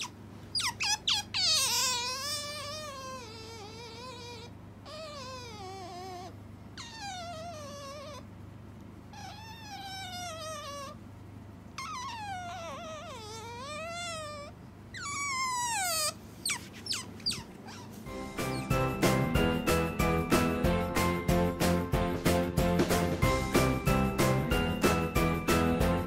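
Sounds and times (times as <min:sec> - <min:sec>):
otter high squeaks: 0:00.0 - 0:08.2, 0:11.8 - 0:19.4
otter whining calls: 0:00.0 - 0:08.3, 0:11.8 - 0:20.5.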